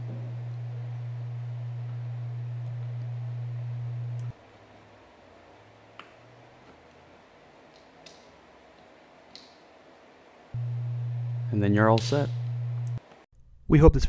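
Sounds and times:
low hum: 0.0 - 4.4, 10.6 - 13.6.

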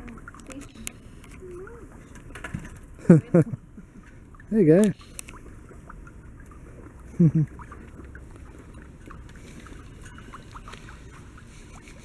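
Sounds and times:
faint chirps and clicks: 4.8 - 5.4.

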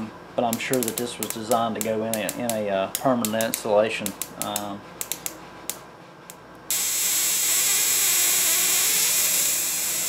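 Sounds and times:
electric arc hissing buzz: 6.7 - 10.0.

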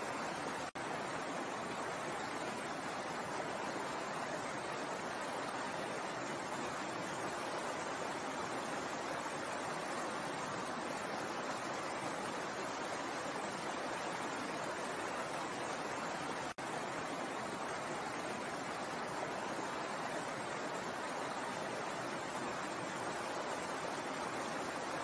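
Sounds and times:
water rushing over rocks: 0.0 - 25.0.

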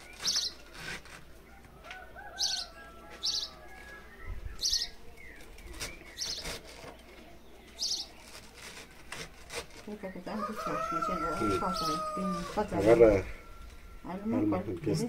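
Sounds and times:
small bird chirping: 0.0 - 0.7, 2.3 - 9.0.

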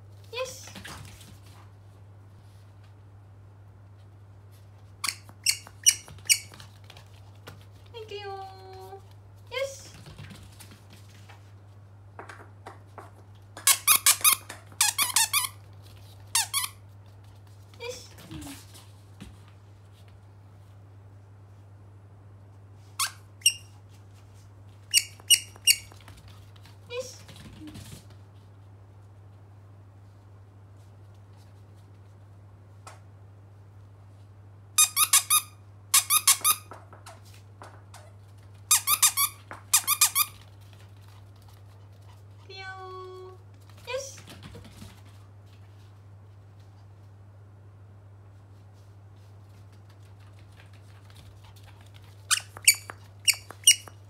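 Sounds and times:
squeaky dog toy squeaks: 5.0 - 6.6, 13.6 - 15.6, 23.0 - 23.7, 24.9 - 26.0, 34.8 - 36.7, 38.7 - 40.4, 52.3 - 54.0.

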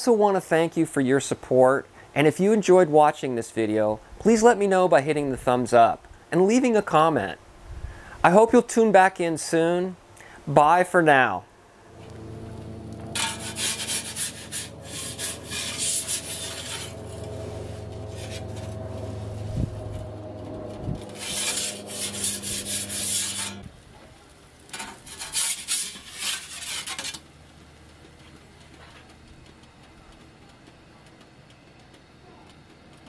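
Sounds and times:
low steady hum: 10.0 - 33.0
metal peel scraping stone floor: 12.0 - 23.8, 24.6 - 27.3.

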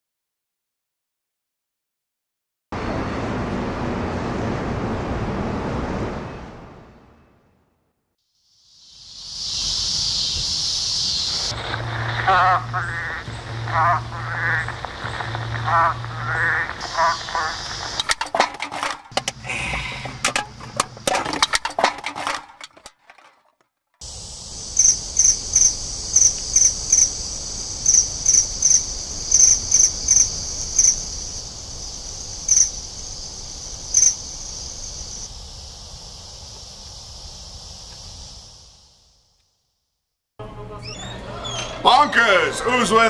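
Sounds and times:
insects droning: 8.2 - 23.3, 24.0 - 39.6, 40.5 - 43.0
sharp insect chirp: 8.3 - 20.0, 24.0 - 39.4.

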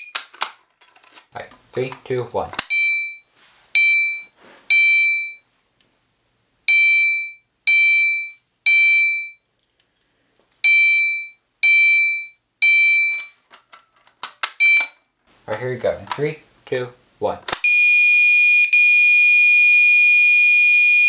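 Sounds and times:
fire alarm horn blasts: 17.7 - 21.0.

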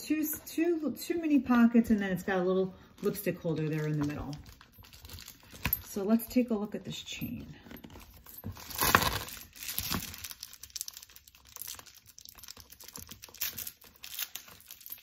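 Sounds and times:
plastic wrapping crinkling: 2.9 - 6.0, 7.6 - 15.0.

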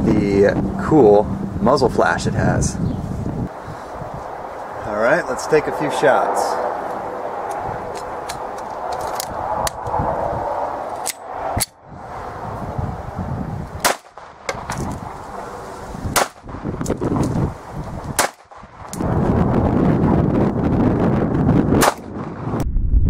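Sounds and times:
blank pistol shots: 13.8 - 14.7, 16.1 - 16.4, 18.2 - 18.6, 21.8 - 22.2.

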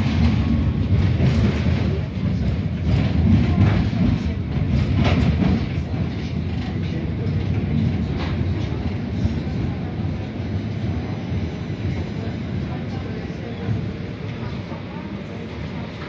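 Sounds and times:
track clacks: 0.0 - 10.3
tram wheels rumbling on rails: 0.0 - 16.0.

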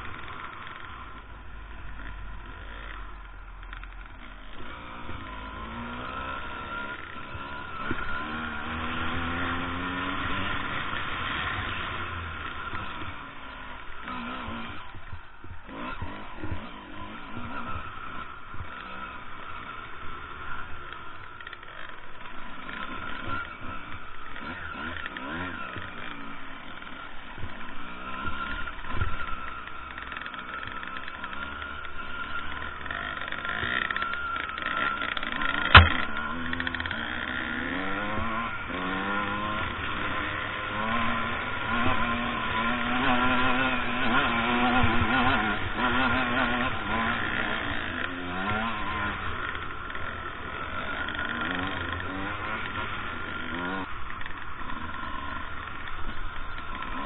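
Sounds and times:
dirt bike engine revving: 0.0 - 57.0
sharp knock: 35.7 - 36.1.

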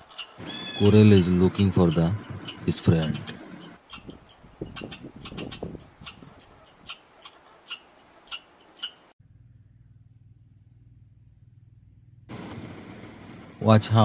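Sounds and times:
squirrel chirping: 0.0 - 9.2
faint low hum: 9.2 - 14.0.

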